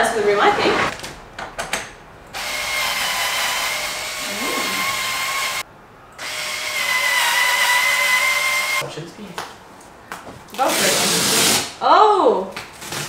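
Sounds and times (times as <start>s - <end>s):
power drill running: 2.4s - 5.6s, 6.2s - 8.8s.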